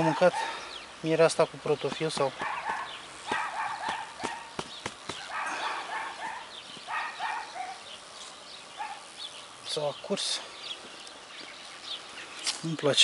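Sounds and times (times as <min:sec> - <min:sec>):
dog barking: 0:00.0 - 0:00.5, 0:02.4 - 0:04.6, 0:05.2 - 0:07.8, 0:08.8 - 0:09.1
knocks and clicks of hive cover: 0:01.8 - 0:05.3.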